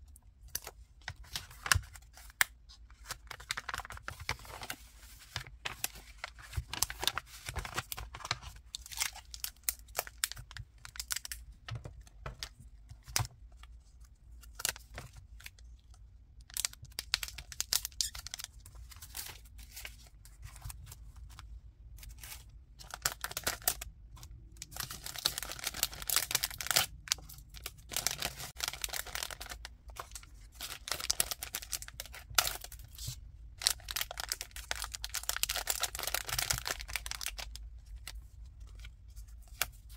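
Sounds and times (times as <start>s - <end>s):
paper and cellophane rustling: 1.2s - 10.1s, 24.7s - 38.2s.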